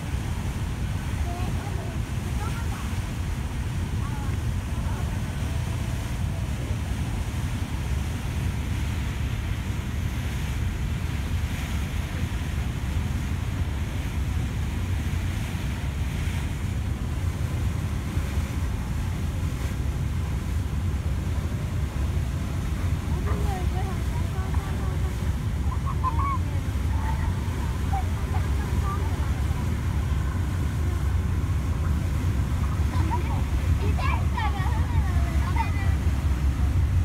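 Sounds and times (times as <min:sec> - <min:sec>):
ship engine rumble: 0:00.0 - 0:37.0
wind and water hiss: 0:00.0 - 0:37.0.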